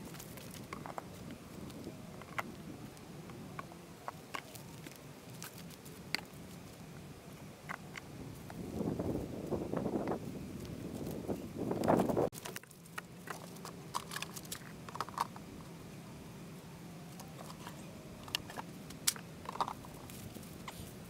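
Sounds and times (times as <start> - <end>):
wooden beehive boxes clicking: 0.0 - 6.9, 17.1 - 21.0
wind noise: 0.0 - 12.4
faint low hum: 0.0 - 21.0.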